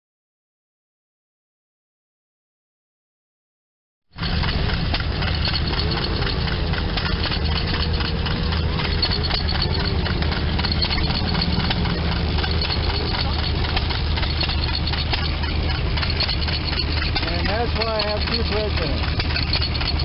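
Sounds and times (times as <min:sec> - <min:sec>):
knitting machine needles clattering: 0:04.2 - 0:20.0
low drive drone: 0:04.2 - 0:20.0.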